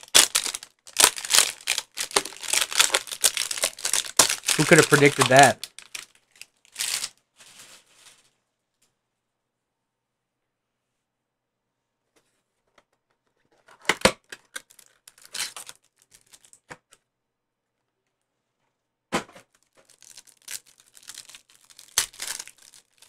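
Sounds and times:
plastic wrapper crinkling and ripping: 0:00.0 - 0:08.3, 0:14.3 - 0:16.7, 0:19.5 - 0:23.0.

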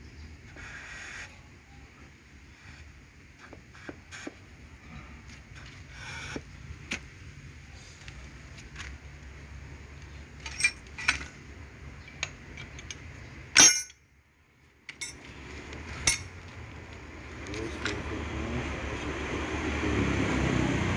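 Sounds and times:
metal parts and tools clinking: 0:10.4 - 0:11.4, 0:12.0 - 0:14.1, 0:14.9 - 0:15.3, 0:16.0 - 0:16.4.

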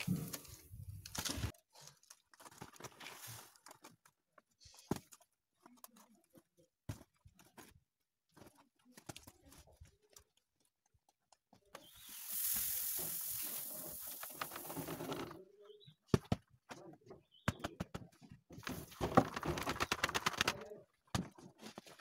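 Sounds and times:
faint clicks and rustles: 0:00.0 - 0:15.7
rice grain pouring from basket: 0:11.9 - 0:15.2.

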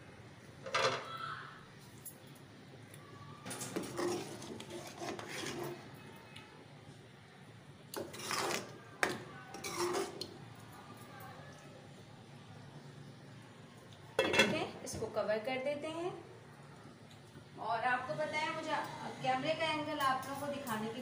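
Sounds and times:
metal spoon stirring in a pot: 0:03.4 - 0:06.0, 0:07.9 - 0:10.4.

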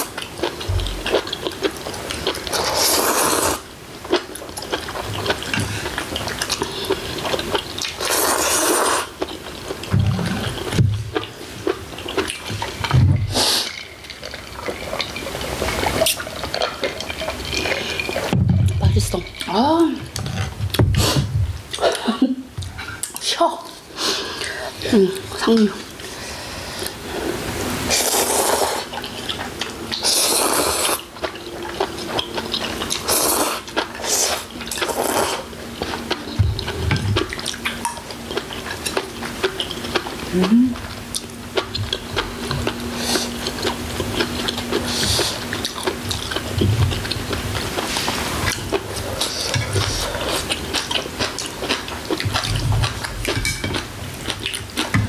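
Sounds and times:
wet chewing and slurping: 0:00.0 - 0:55.0
spoons clicking on bowls: 0:53.3 - 0:53.8.

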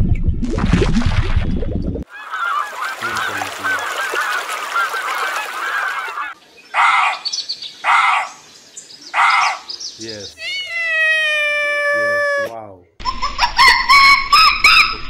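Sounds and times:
geese honking: 0:02.1 - 0:07.2.

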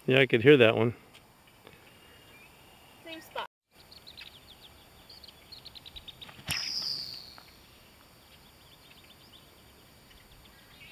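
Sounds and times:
high whistle of flying ball: 0:06.4 - 0:07.5.

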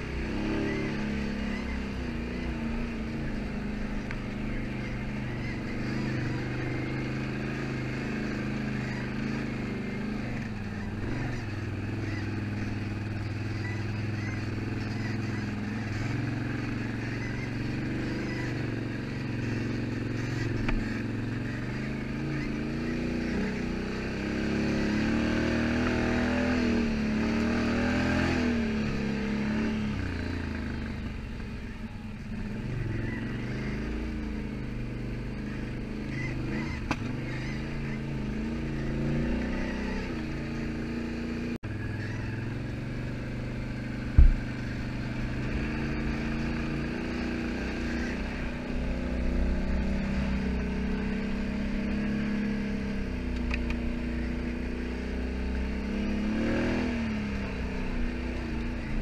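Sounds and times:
atv engine running: 0:00.0 - 0:59.0
loud low thump: 0:44.2 - 0:44.5.

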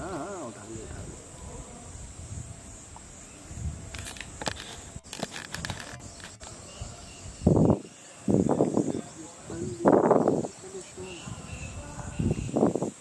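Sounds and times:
high insect drone: 0:00.0 - 0:13.0
faint clicks and crackles: 0:03.9 - 0:06.5.

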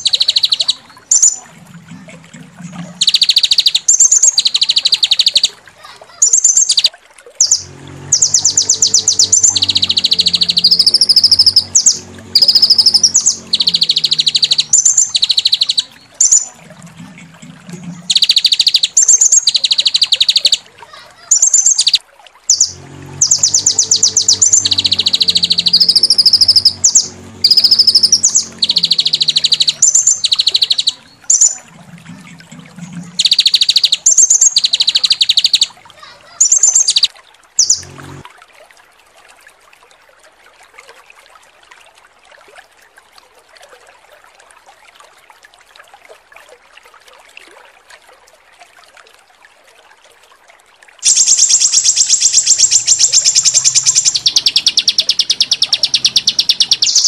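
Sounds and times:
songbird trills and chattering: 0:00.0 - 0:01.4, 0:03.0 - 0:05.6, 0:06.2 - 0:16.5, 0:18.0 - 0:20.6, 0:21.3 - 0:31.7, 0:33.1 - 0:35.7, 0:36.4 - 0:37.8, 0:51.0 - 0:57.0
low hum: 0:01.0 - 0:03.6, 0:07.4 - 0:18.8, 0:22.5 - 0:36.3, 0:37.6 - 0:38.4.

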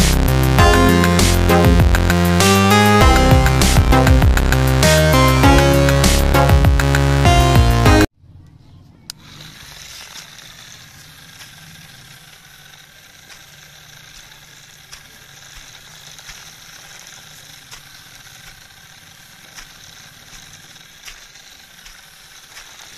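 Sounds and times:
small electric motor whirring: 0:00.0 - 0:07.0, 0:09.0 - 0:22.9
faint ticks: 0:10.1 - 0:22.9.

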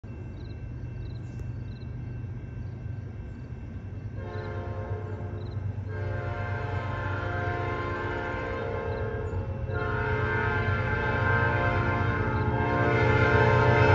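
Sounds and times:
diesel locomotives rumbling: 0:00.0 - 0:13.9
train air horn blasts: 0:04.2 - 0:13.9.

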